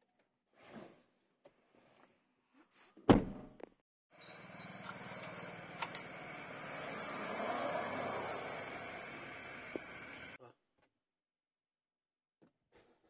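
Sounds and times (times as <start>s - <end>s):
insects trilling: 4.1s - 10.4s.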